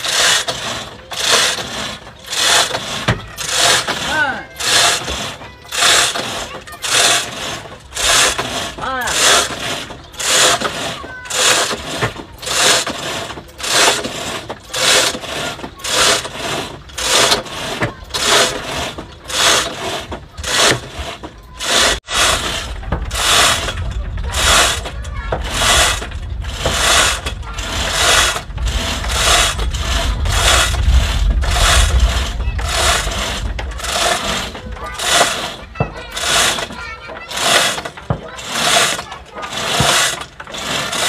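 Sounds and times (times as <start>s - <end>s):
chain hoist ratcheting: 0.0s - 41.0s
wind rumbling on microphone: 22.0s - 34.9s.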